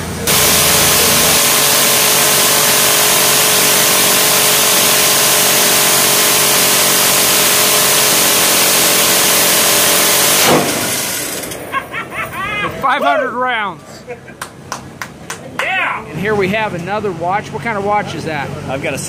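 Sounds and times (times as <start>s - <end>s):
machine gun continuous burst: 0.3s - 11.4s.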